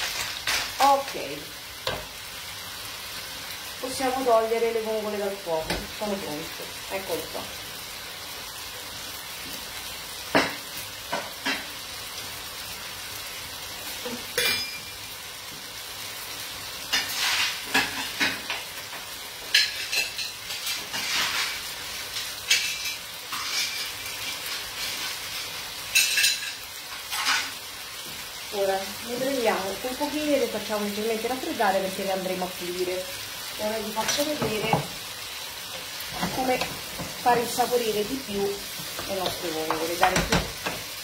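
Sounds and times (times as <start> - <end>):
frying pan sizzling: 0.0 - 41.0.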